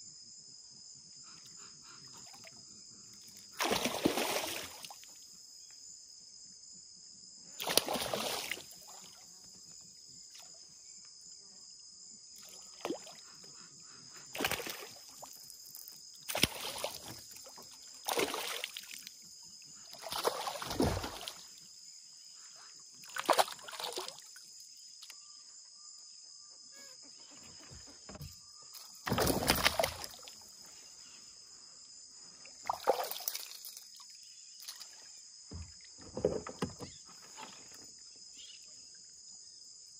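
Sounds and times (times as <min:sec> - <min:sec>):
insects buzzing: 0:00.0 - 0:39.9
paddle splashing in water: 0:07.6 - 0:09.2, 0:16.3 - 0:19.0, 0:20.0 - 0:21.5, 0:29.0 - 0:30.4.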